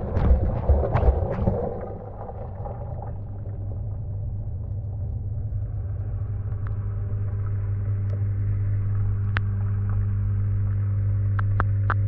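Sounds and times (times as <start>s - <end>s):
water sloshing: 0.0s - 4.1s
washing machine humming: 0.0s - 10.2s.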